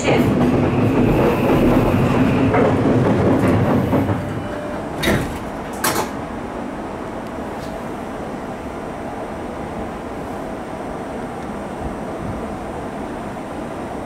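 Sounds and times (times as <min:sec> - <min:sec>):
train running rumble: 0:00.0 - 0:14.0.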